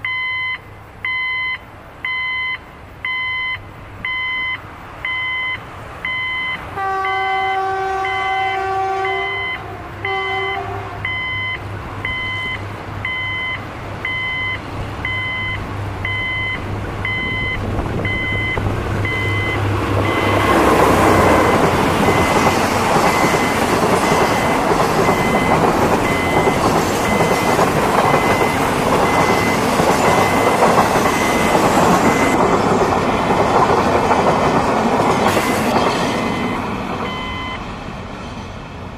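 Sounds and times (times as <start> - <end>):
level crossing signal beeping: 0.0 - 32.5, 36.2 - 37.6
locomotive engine hum: 0.2 - 38.9
locomotive horn blasts: 6.7 - 11.4
train wagons rolling clatter: 16.6 - 38.9.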